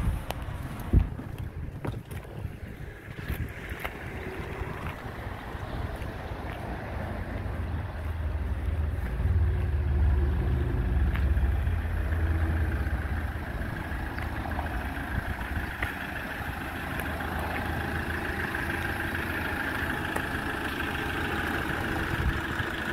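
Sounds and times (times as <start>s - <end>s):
wind rumbling on microphone: 0.0s - 11.8s, 12.7s - 17.8s, 21.7s - 22.9s
diesel engine idling: 0.0s - 22.9s.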